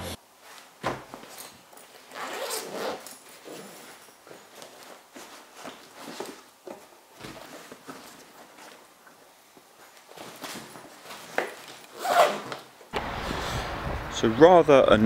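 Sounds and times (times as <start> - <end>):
rustling of kit: 0.4 - 12.9
zip pulled open: 2.1 - 4.0, 11.8 - 12.7.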